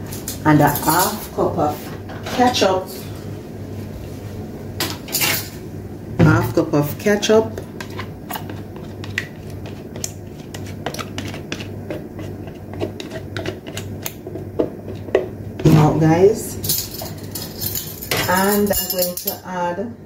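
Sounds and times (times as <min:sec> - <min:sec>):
steady low hum: 0:00.0 - 0:20.0
utensils tapping a bowl: 0:16.6 - 0:19.4.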